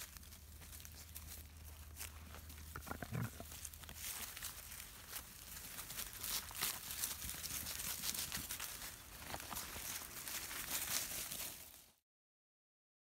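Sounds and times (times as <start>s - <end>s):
paws rustling dry leaves: 0.0s - 12.0s
puppy growling: 2.7s - 3.6s.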